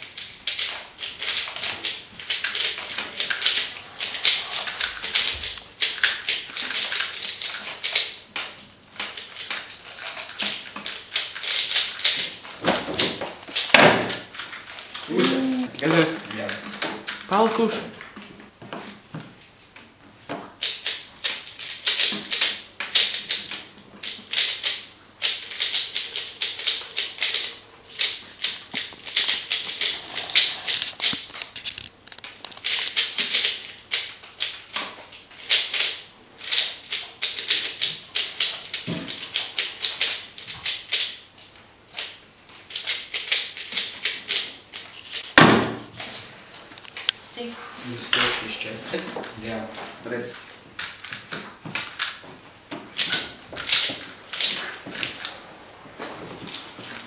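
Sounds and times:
puzzle cube plastic clicks: 20.5s - 45.4s.

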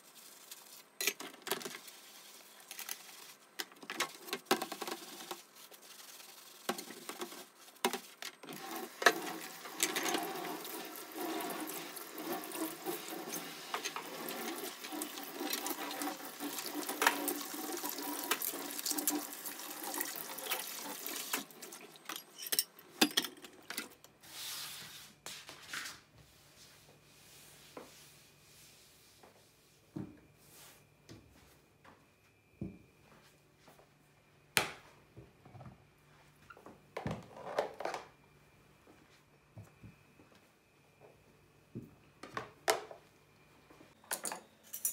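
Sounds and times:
tap water running into sink: 8.5s - 22.0s.

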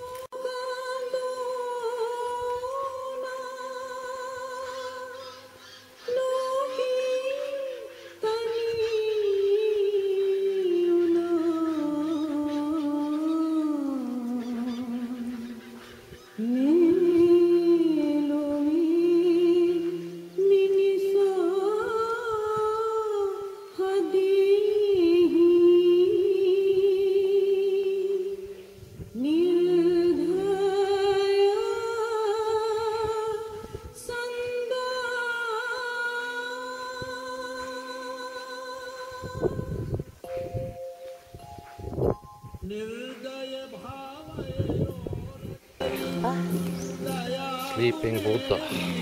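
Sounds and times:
person singing with vibrato: 0.0s - 49.0s.

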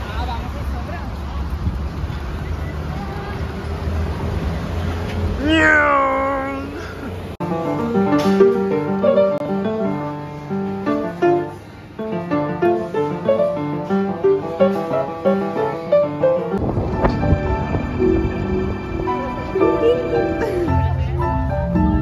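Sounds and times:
outdoor background noise: 0.0s - 22.0s
grand piano melody: 7.4s - 22.0s.

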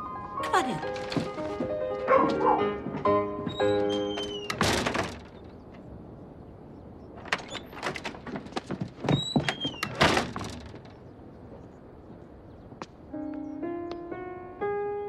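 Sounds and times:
door squeak: 0.5s - 5.6s, 7.2s - 8.4s, 9.0s - 11.0s
door knocks and clicks: 0.8s - 5.6s, 7.2s - 11.0s
heavy door thuds: 0.8s - 5.6s, 7.2s - 11.0s.

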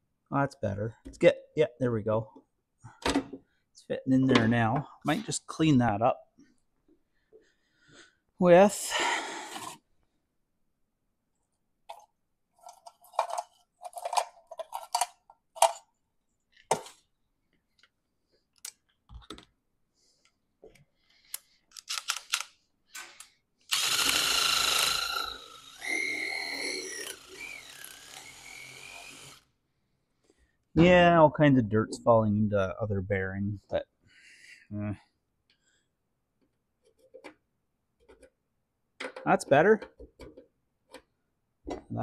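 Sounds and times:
knocks and scrapes of parts handled: 11.9s - 17.1s, 36.4s - 38.4s, 39.0s - 41.1s
cordless drill spinning: 23.7s - 29.5s.

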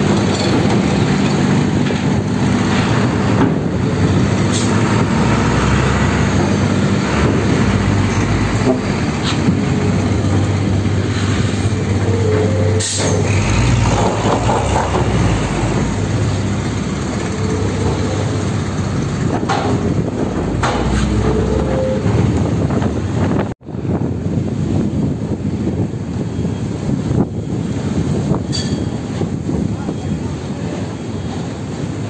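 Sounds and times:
diesel truck engine running: 0.0s - 25.4s
metallic knocks from wheels: 12.3s - 18.6s.

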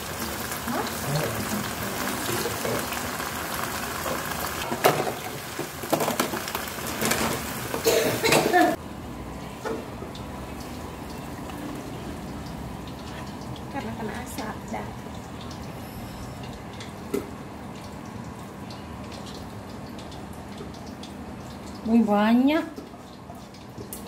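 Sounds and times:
vegetables sizzling in a wok: 0.0s - 8.8s.

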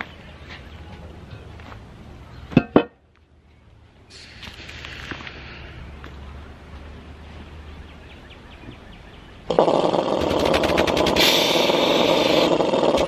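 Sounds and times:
air compressor pump running: 9.6s - 13.0s.

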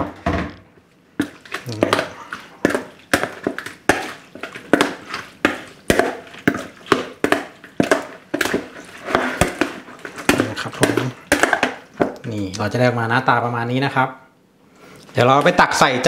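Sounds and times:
metal spoon scraping plastic bowl: 1.4s - 11.8s.

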